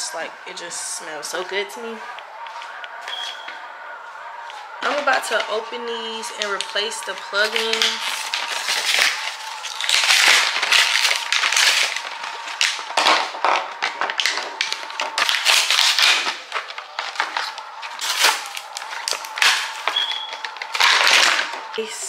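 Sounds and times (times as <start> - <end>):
plastic packs crinkling: 0.5 - 22.0
cardboard ripping: 7.3 - 21.7.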